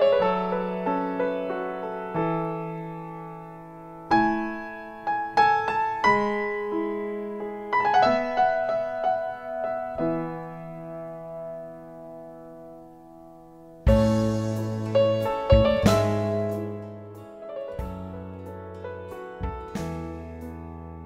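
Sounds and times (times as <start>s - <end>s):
slow solo piano: 0.0s - 21.0s.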